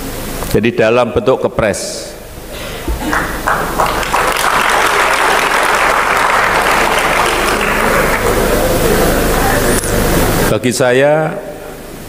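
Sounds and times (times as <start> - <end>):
audience applauding: 3.0 - 9.6.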